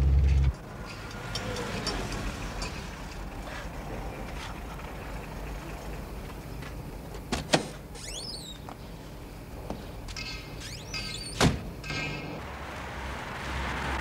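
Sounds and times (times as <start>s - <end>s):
car engine idling: 0.0s - 7.3s.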